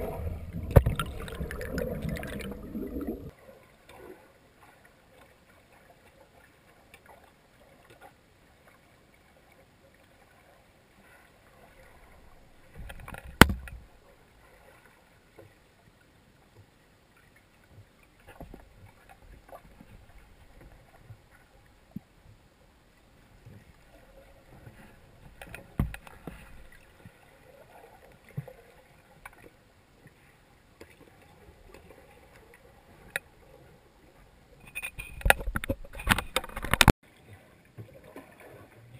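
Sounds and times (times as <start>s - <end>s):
underwater knocks and clicks: 0.0s - 3.3s, 12.7s - 13.9s, 25.2s - 26.7s, 34.7s - 37.0s
faint underwater water noise: 0.0s - 38.9s.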